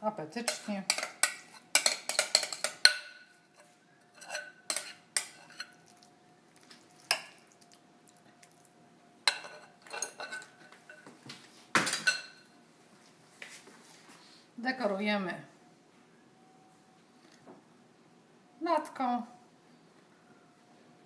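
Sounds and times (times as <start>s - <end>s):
metal spoon scraping glass bowl: 0.5s - 5.8s, 9.3s - 11.0s.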